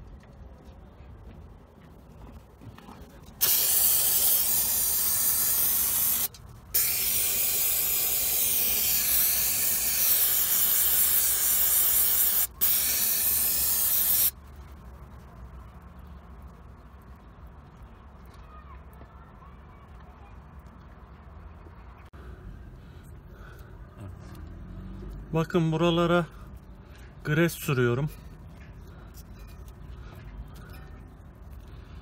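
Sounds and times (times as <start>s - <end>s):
aerosol spray hissing: 3.4s - 14.4s.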